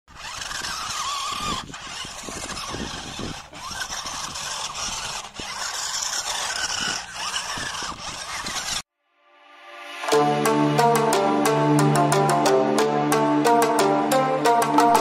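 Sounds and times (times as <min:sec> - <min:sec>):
rc car motor whining: 0:00.1 - 0:08.9.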